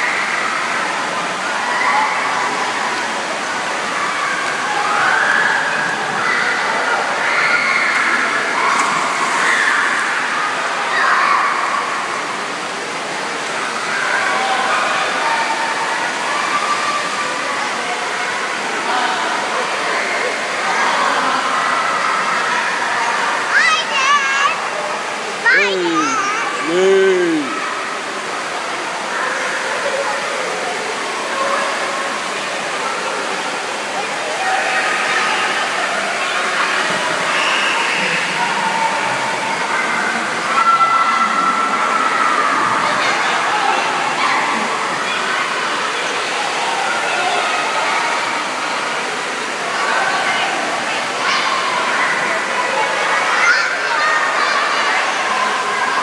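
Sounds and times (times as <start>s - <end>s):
faint distant voices: 0.0s - 56.0s
water rushing and splashing: 0.0s - 56.0s
children shouting and shrieking: 3.9s - 12.0s, 20.6s - 24.8s, 25.4s - 28.0s, 49.7s - 56.0s.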